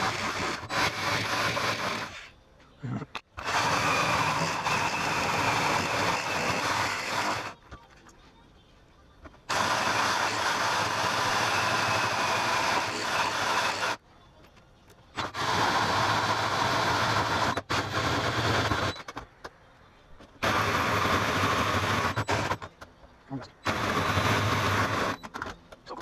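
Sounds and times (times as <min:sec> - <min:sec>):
drill hole saw grinding metal: 0:00.0 - 0:02.3, 0:03.4 - 0:07.6, 0:09.5 - 0:14.0, 0:23.5 - 0:25.4.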